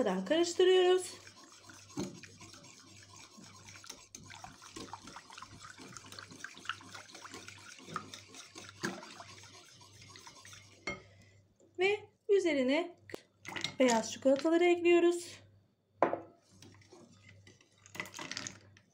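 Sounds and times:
whisk swishing cream: 0.0 - 11.0.

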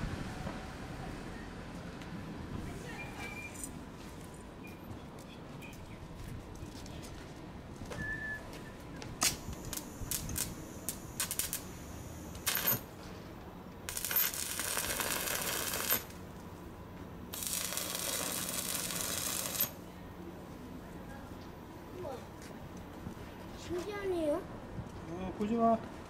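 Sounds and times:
short welding ticks: 9.2 - 12.8, 13.9 - 16.2, 17.3 - 19.8
welding arc crackling: 9.2 - 12.9, 13.9 - 16.2, 17.3 - 19.8.

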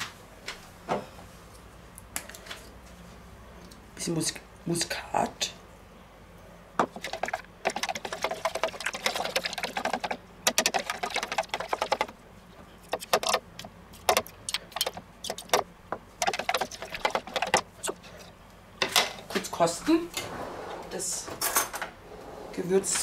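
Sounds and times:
spoon whisking in plastic jug: 6.8 - 18.4.

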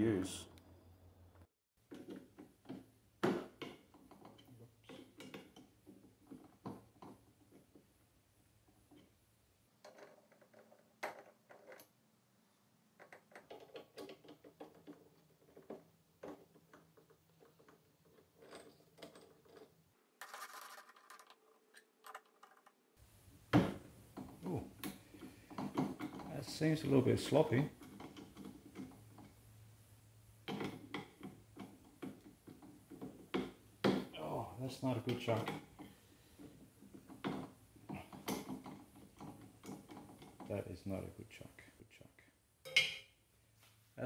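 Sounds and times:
scraping rattle: 13.2 - 22.7.

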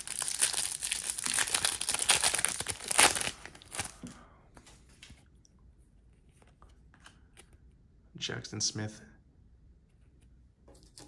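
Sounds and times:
foil wrapper crinkling and tearing: 0.0 - 4.0.

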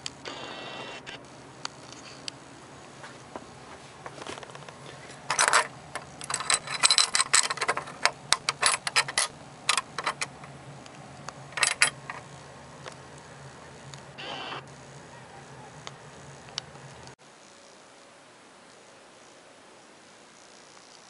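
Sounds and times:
metal antenna mount clinking: 5.2 - 10.6, 11.5 - 12.3.

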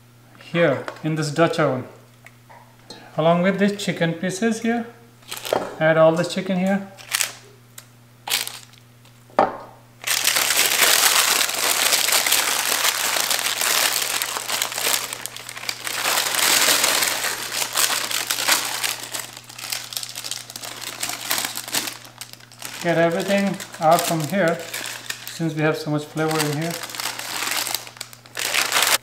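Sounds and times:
parchment paper crinkling: 7.0 - 7.4, 8.3 - 8.8, 10.0 - 29.0.

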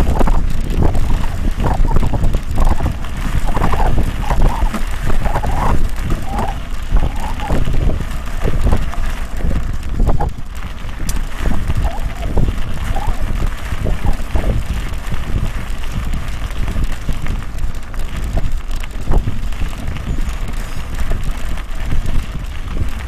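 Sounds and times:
bike rattling over bumpy dirt: 0.0 - 23.0
wind rumbling on microphone: 0.0 - 23.0.

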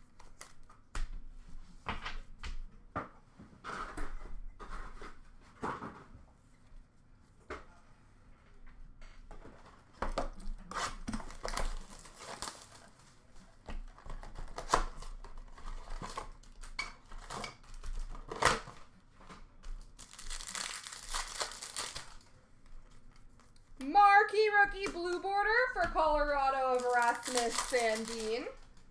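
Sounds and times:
wrappers tearing and crinkling: 10.7 - 13.0, 19.8 - 22.3, 26.4 - 28.8.

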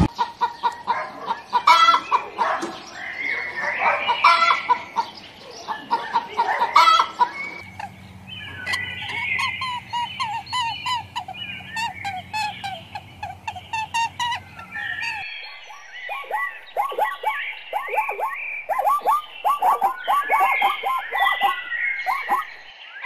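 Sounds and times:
fowl clucking: 0.0 - 22.5
low steady hum: 4.2 - 22.7.

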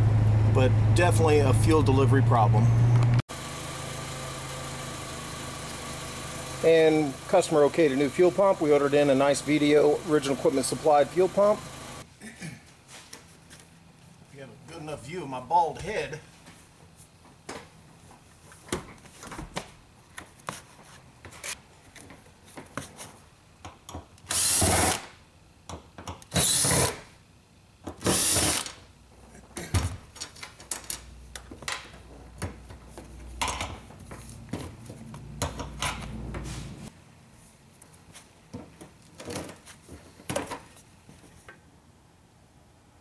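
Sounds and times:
cordless drill running: 9.4 - 12.0, 24.3 - 25.1, 26.4 - 27.0, 28.0 - 28.8.

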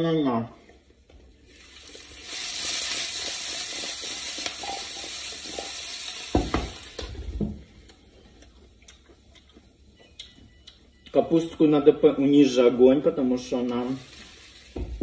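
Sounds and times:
vegetables sizzling in a frying pan: 1.3 - 7.5, 13.4 - 15.0.

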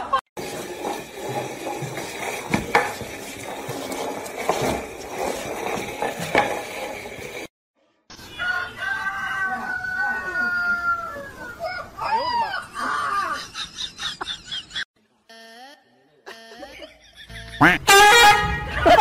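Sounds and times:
dog dragging pot on tiled floor: 0.4 - 7.5
rooster crowing: 8.3 - 11.6.

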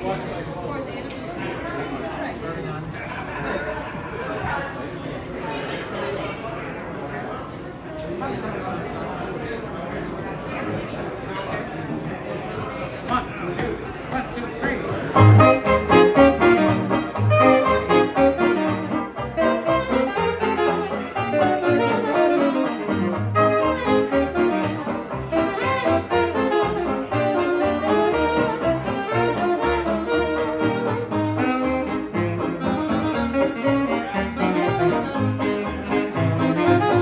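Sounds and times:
banjo: 15.1 - 37.0
jazz band playing: 15.1 - 37.0
string bass: 15.1 - 37.0
horns: 15.2 - 37.0.

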